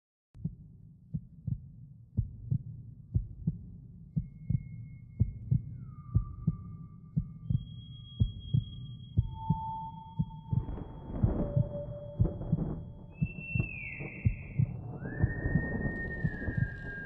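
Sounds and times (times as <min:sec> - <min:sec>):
heartbeat double thump: 0:10.2 - 0:16.8.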